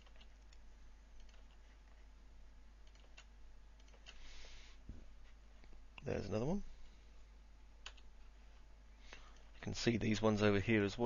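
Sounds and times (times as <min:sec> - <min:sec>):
low steady hum: 0:00.0 - 0:11.0
mouse and keyboard clicks: 0:01.2 - 0:01.6.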